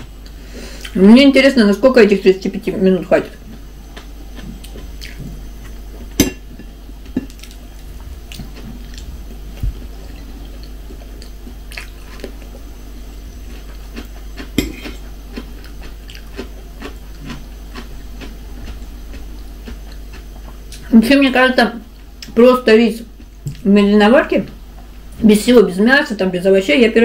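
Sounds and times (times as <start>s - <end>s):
low steady hum: 0.0s - 27.0s
person chewing rice: 3.4s - 20.9s.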